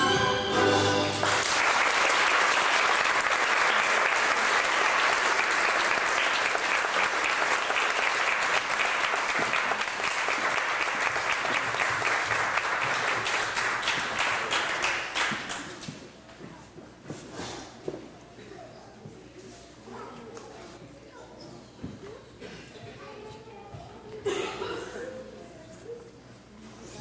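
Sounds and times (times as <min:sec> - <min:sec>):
audience applauding: 0:01.1 - 0:15.9.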